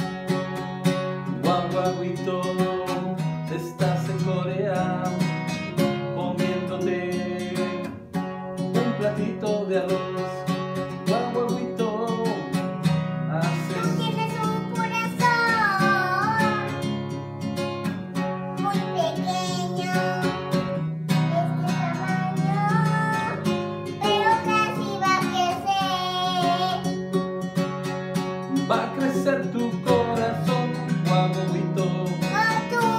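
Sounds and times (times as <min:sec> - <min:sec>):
strummed acoustic guitar: 0:00.0 - 0:32.9
girl singing: 0:13.4 - 0:17.0, 0:18.4 - 0:27.0, 0:28.6 - 0:32.9.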